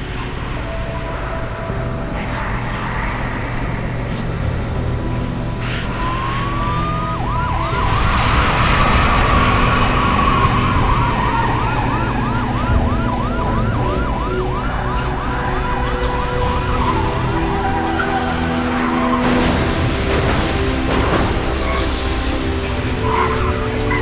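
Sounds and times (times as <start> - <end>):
low steady drone: 0.0 - 24.0
rush of noise: 0.0 - 24.0
siren yelping: 5.8 - 20.2.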